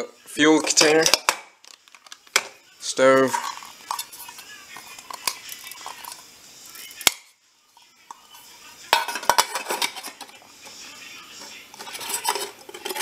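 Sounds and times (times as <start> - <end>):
metal cook pots clinking: 3.2 - 6.2, 8.9 - 10.4, 11.7 - 13.0.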